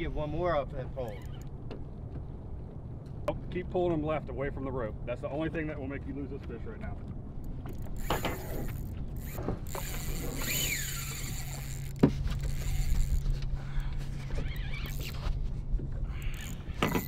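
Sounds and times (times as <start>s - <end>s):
fishing reel whirring: 1.0s - 1.5s, 7.6s - 15.3s, 16.1s - 17.0s.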